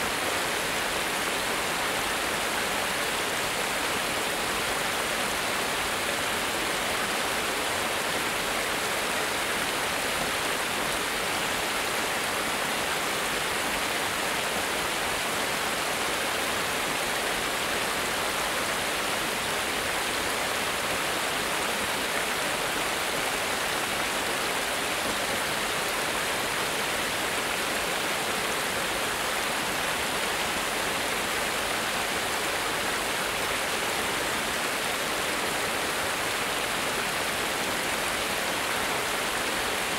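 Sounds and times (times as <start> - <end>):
water cascading over weir: 0.0 - 39.9.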